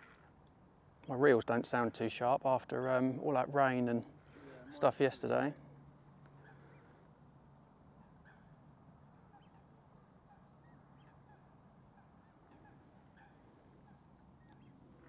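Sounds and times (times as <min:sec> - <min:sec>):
low steady hum: 0:00.0 - 0:15.0
distant waterfowl calls: 0:06.3 - 0:07.0, 0:07.8 - 0:15.0.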